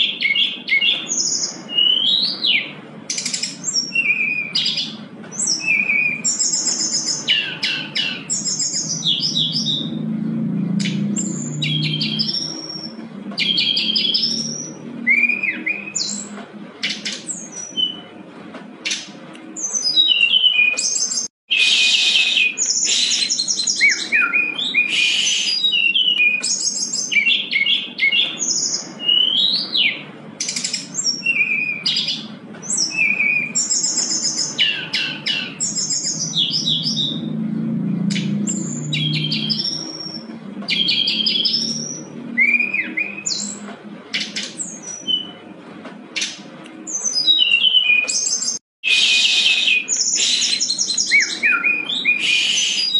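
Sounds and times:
bird singing trills and whistles: 0:00.0 - 0:10.0, 0:10.6 - 0:18.1, 0:18.8 - 0:37.4, 0:38.0 - 0:45.4, 0:46.2 - 0:52.9.

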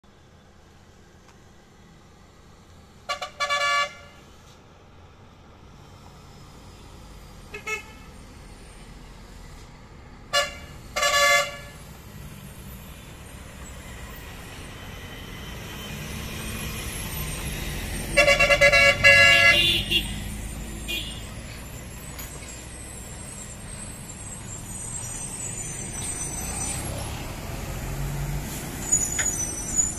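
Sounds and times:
lorry engine: 0:04.2 - 0:29.9
lorry air horns: 0:10.3 - 0:11.8, 0:18.0 - 0:20.2.

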